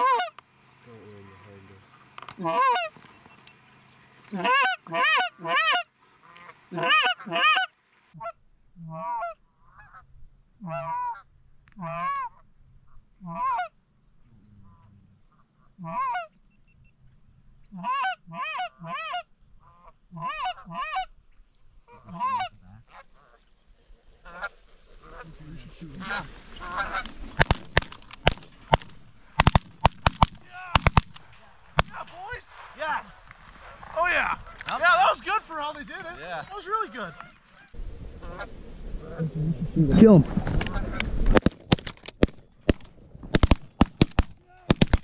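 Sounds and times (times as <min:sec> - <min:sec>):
goose honking: 0:00.0 - 0:03.0, 0:04.2 - 0:10.0, 0:10.6 - 0:13.8, 0:15.7 - 0:16.4, 0:17.7 - 0:21.2, 0:21.9 - 0:23.4, 0:24.2 - 0:29.9, 0:33.6 - 0:41.1.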